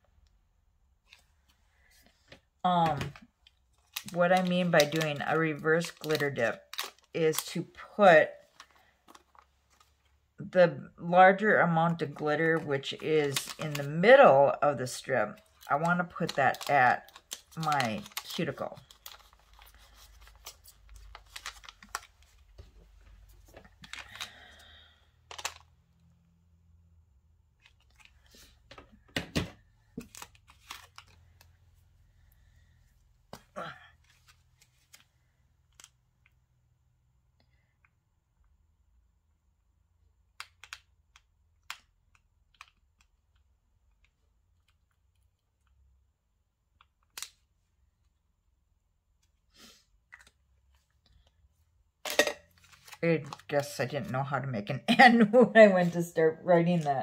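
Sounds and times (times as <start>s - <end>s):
clicks and rustling of packets: 1.0s - 10.2s, 12.0s - 26.1s, 27.6s - 31.9s, 33.3s - 36.4s, 40.3s - 45.9s, 52.1s - 53.8s.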